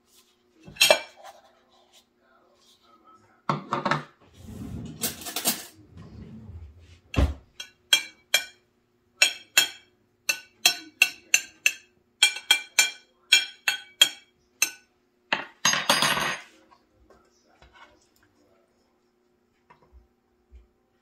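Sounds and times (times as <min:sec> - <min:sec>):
metal spoon tapping a plate: 0:07.6 - 0:08.6, 0:09.2 - 0:15.5.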